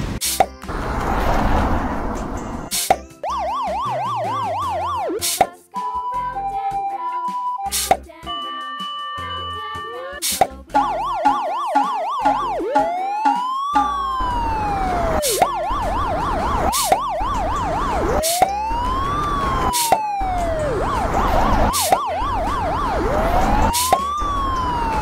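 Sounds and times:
police siren wailing and yelping: 0:03.2 - 0:08.0, 0:10.8 - 0:25.0.

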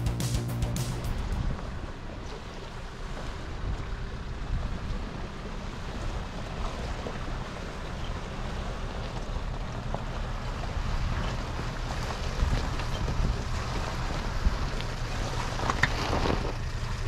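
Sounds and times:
wind buffeting microphone: 0:03.3 - 0:16.8.

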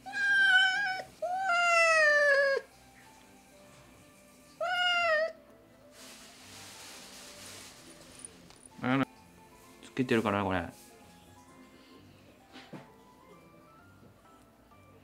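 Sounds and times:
cat meowing: 0:00.0 - 0:02.7, 0:04.6 - 0:05.4.

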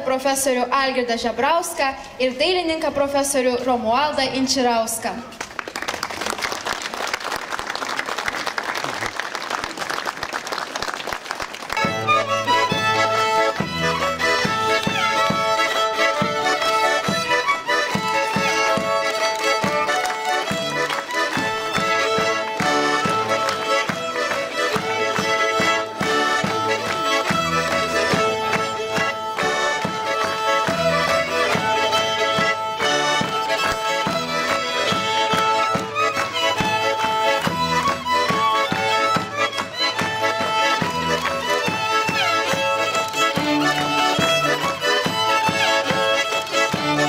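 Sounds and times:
lively instrumental folk music: 0:00.0 - 0:47.0
applause: 0:05.3 - 0:12.3, 0:18.8 - 0:31.8, 0:39.5 - 0:44.8.

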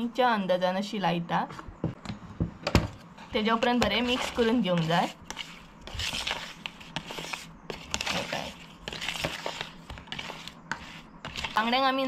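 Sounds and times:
wet scraping in plastic bowl: 0:03.6 - 0:11.7.

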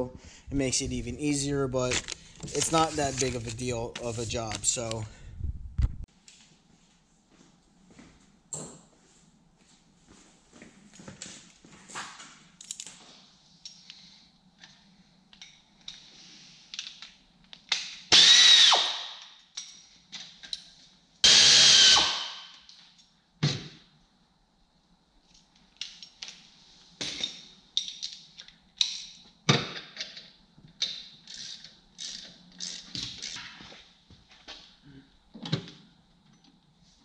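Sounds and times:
cordless power tool whining: 0:18.1 - 0:19.0, 0:21.2 - 0:22.2.

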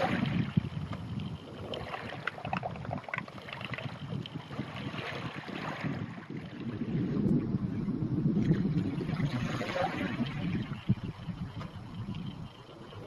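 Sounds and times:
wind buffeting microphone: 0:00.0 - 0:13.0
waves splashing against rocks: 0:09.0 - 0:10.8.

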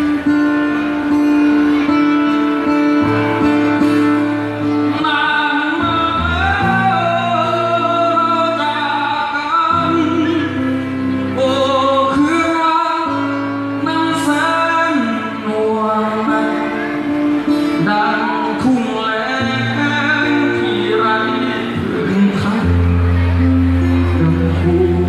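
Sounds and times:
acoustic guitar strumming: 0:00.0 - 0:25.0
man singing: 0:02.6 - 0:25.0.

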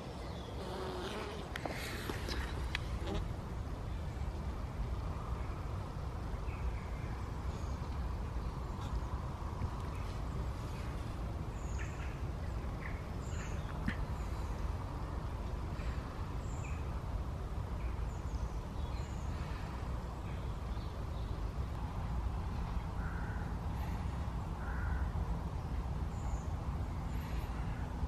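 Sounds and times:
small birds chirping: 0:06.4 - 0:17.0.

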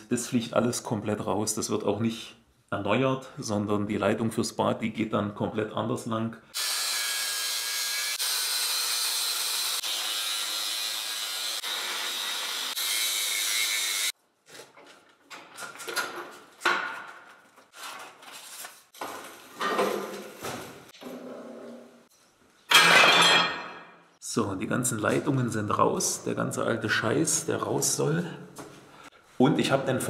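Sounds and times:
angle grinder cutting metal pipe: 0:06.6 - 0:14.2.

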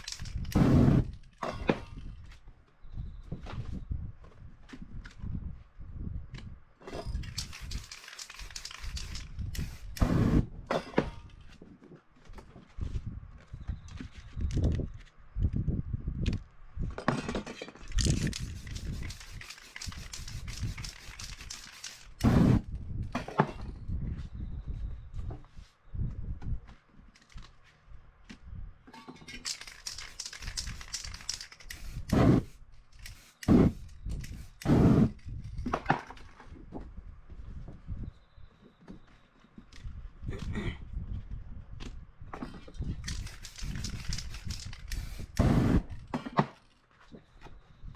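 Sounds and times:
flame whooshes: 0:00.6 - 0:01.1, 0:34.5 - 0:35.2
flames whooshing: 0:00.6 - 0:01.1
aerosol spray hissing: 0:18.4 - 0:22.6, 0:31.7 - 0:35.1.

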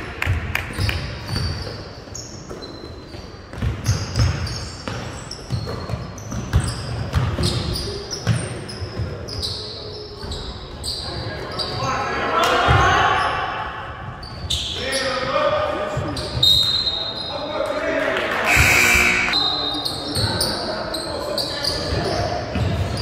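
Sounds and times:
sneaker squeaks: 0:00.7 - 0:12.1, 0:14.1 - 0:15.3, 0:15.9 - 0:17.5, 0:18.5 - 0:23.0
basketballs bouncing on hardwood: 0:03.5 - 0:08.4.

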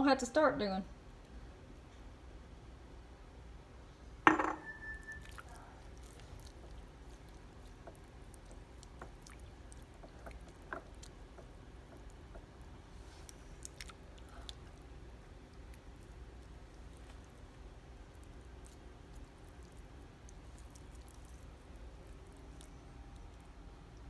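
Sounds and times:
glass bottle knocking on stone: 0:04.2 - 0:05.1
wet squishes of hand mixing food: 0:05.1 - 0:24.0.

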